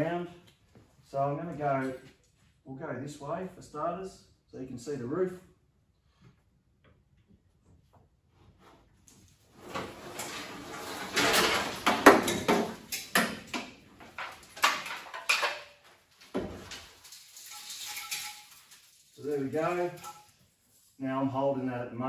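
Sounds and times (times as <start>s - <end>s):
metal scraping and rattling: 9.2s - 21.0s.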